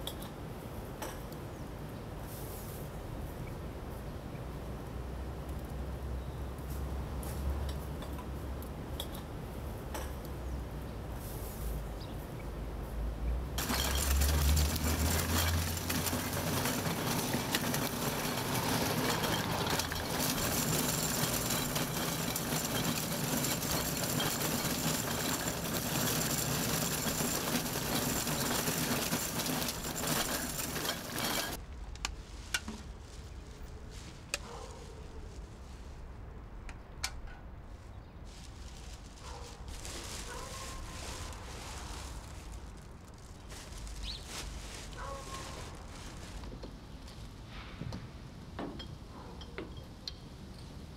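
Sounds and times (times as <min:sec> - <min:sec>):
shopping cart rattling on pavement: 0:13.6 - 0:31.6, 0:38.3 - 0:46.4.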